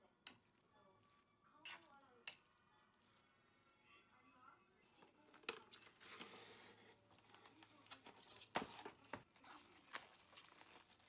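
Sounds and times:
plastic cling film crinkling: 4.9 - 11.0.

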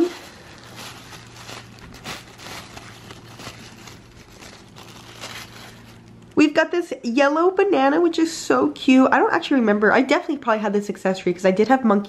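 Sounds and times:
tissue paper rustling: 0.0 - 6.2.

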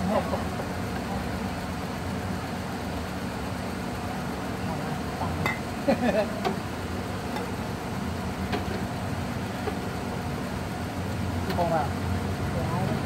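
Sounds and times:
street traffic hum: 0.0 - 13.0.

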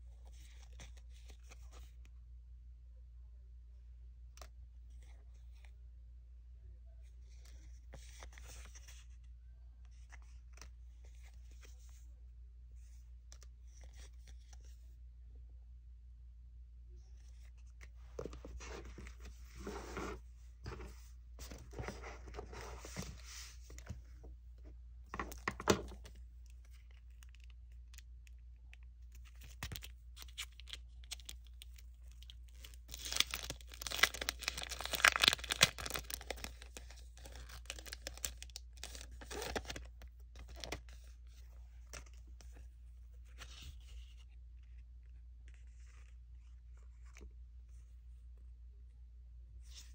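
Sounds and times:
packaging rustling and crinkling: 29.2 - 40.9.

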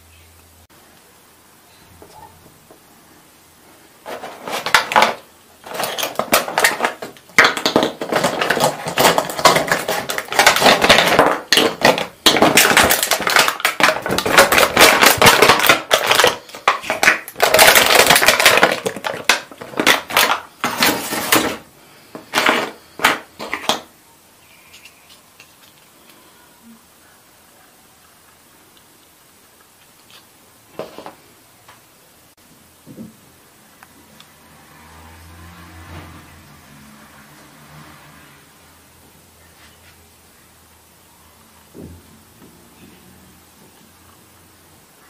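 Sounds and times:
plastic packaging crackling: 4.0 - 23.9.

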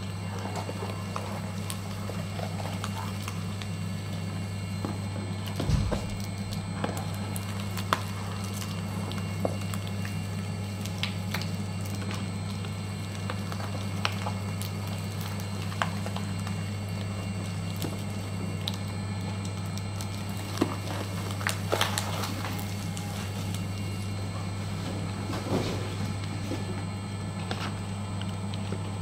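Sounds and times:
shredder motor hum: 0.0 - 29.0
cardboard cracking and snapping: 19.6 - 23.9.

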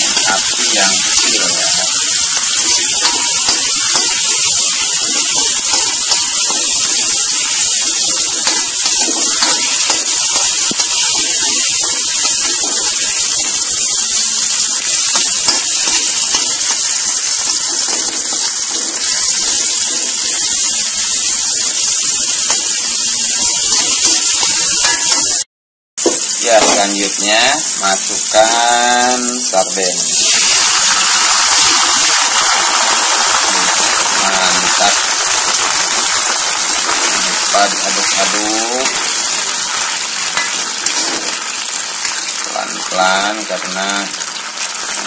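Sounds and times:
vegetables sizzling in hot oil: 0.0 - 25.4, 26.0 - 45.0
metal spatula scraping wok: 0.1 - 25.4, 36.8 - 42.2.

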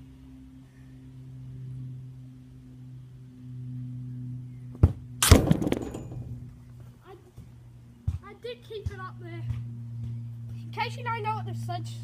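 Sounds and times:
ball kicked sharp knock: 4.8 - 6.4
ball hitting goal netting: 4.8 - 6.6
goal frame rattling: 5.2 - 6.6.

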